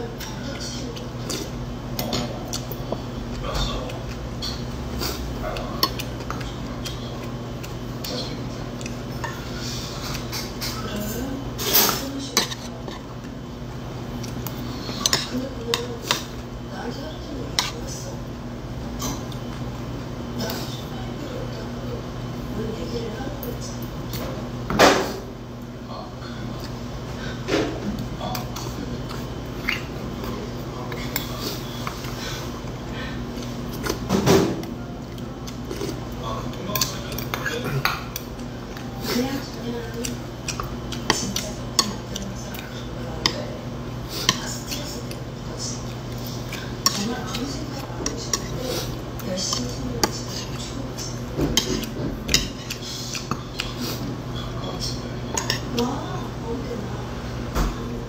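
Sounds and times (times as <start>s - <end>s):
eating noise: 27.9s - 34.1s, 35.0s - 55.8s
chopsticks clinking on metal bowl: 54.9s - 55.9s.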